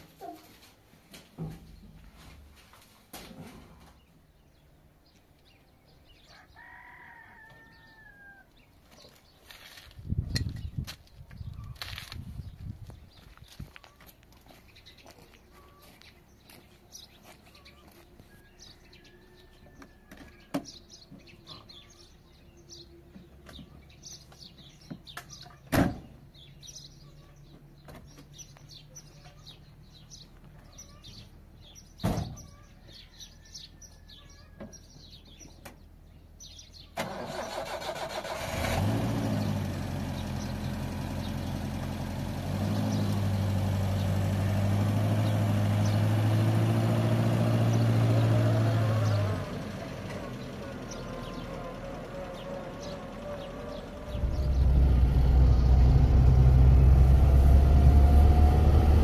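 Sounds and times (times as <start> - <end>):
birds chirping: 3.7 - 38.4, 39.2 - 58.2
car engine starting and idling: 36.9 - 59.0.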